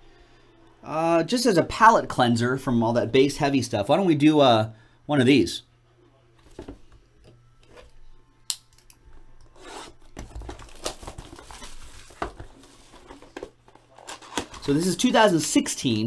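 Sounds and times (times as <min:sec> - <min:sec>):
plastic wrap crinkling: 0:10.2 - 0:15.0.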